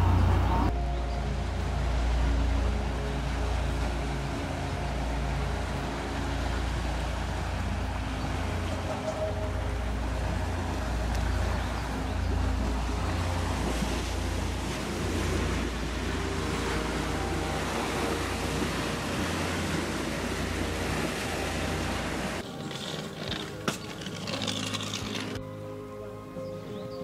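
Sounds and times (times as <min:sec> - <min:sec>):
waves washing against riverbank: 0:00.0 - 0:25.4
faint engine hum: 0:00.0 - 0:27.0.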